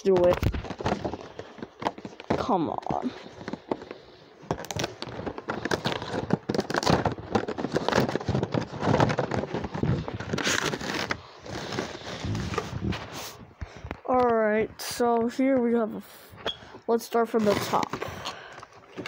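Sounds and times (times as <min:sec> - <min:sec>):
packaging being ripped open: 0:04.5 - 0:12.3.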